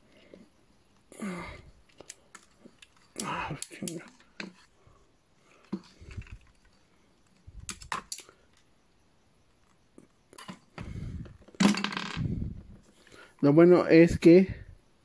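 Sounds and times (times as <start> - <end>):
plastic toy parts clicking: 1.8 - 4.7, 5.6 - 8.7.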